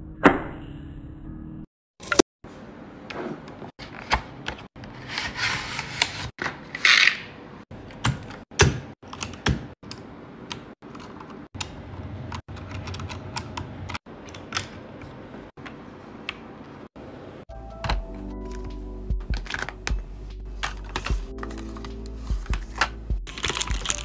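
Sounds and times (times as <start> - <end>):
keyboard keys clacking: 17.5 - 24.0.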